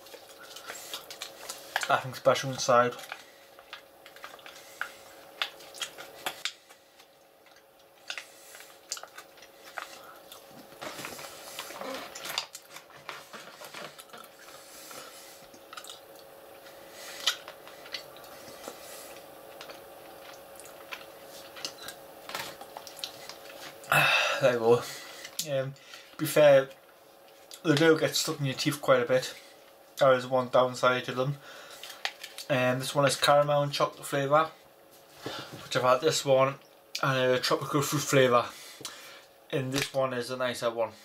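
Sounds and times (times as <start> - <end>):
person chewing: 0.0 - 1.9, 3.0 - 23.9.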